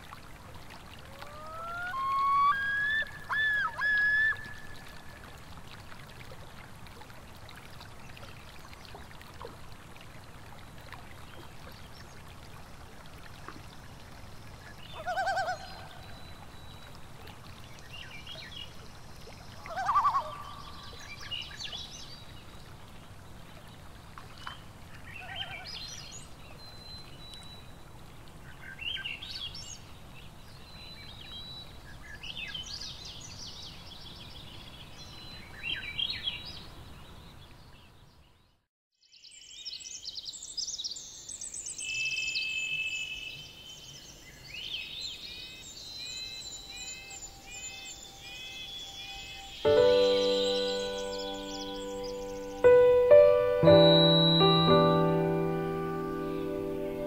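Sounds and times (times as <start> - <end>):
running stream water: 0.0 - 38.2, 39.4 - 57.0
high-pitched bird song: 46.1 - 57.0
birds calling and chirping: 46.2 - 57.0.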